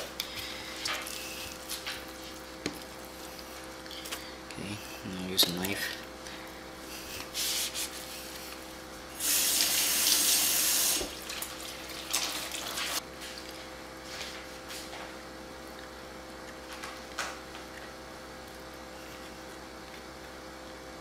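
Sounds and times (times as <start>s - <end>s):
kitchen tap running: 9.2s - 13.0s.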